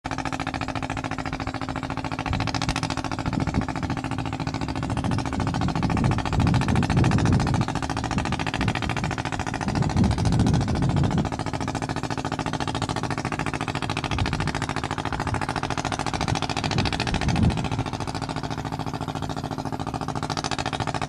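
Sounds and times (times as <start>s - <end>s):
boat engine chugging: 0.0s - 21.0s.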